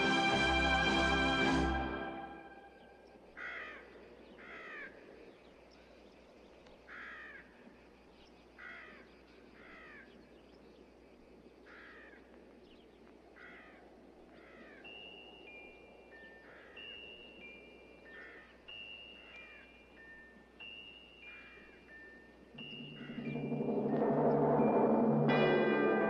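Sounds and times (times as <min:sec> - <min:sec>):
faint background hiss: 0:00.0 - 0:26.0
crow cawing: 0:03.4 - 0:05.0, 0:06.9 - 0:07.5, 0:08.6 - 0:10.1, 0:11.7 - 0:12.2, 0:13.4 - 0:14.8, 0:18.1 - 0:18.6
high sustained tones: 0:22.4 - 0:26.0.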